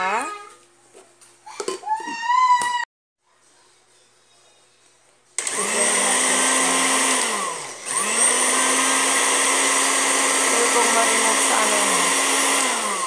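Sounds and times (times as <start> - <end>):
blender grinding cookies: 5.4 - 13.0.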